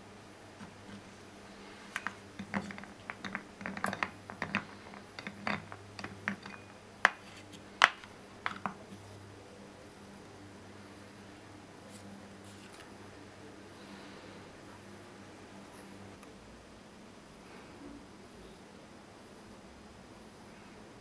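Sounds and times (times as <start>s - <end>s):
metal rake clicking on clay balls: 1.9s - 8.9s.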